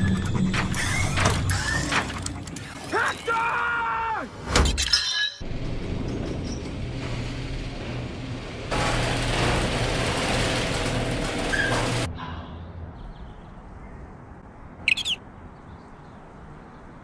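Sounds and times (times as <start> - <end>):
garage door rattling: 0.0 - 2.3, 5.4 - 12.1
garage door motor hum: 5.4 - 12.1
high chirp: 14.8 - 15.2.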